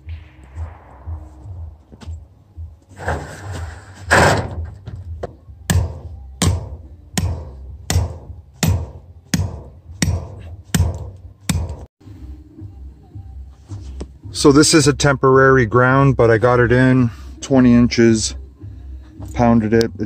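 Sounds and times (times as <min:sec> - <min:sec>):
rustling noise: 0:00.0 - 0:05.1
sledgehammer striking steel rod: 0:05.7 - 0:11.9.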